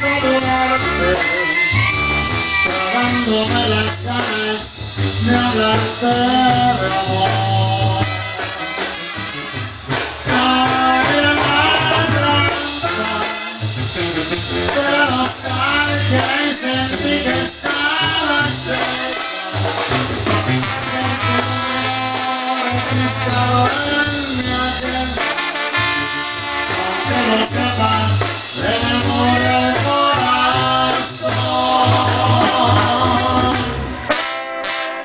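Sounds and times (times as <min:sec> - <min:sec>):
live brass band music: 0:00.0 - 0:35.0.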